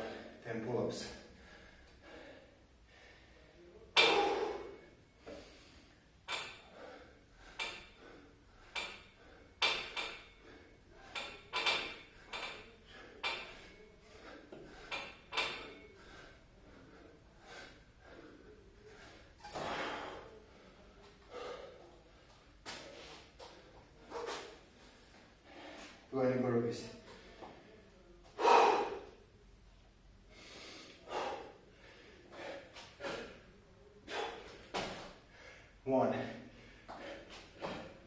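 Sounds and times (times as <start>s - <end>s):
man breathing forcefully: 1.3s - 20.4s, 21.3s - 21.9s, 28.4s - 29.2s, 30.3s - 35.8s, 36.4s - 38.0s.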